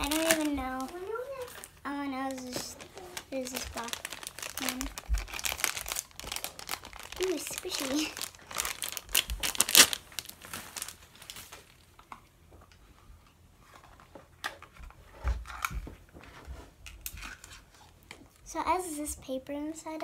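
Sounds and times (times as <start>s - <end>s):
plastic wrapping crinkling: 0.0s - 12.1s.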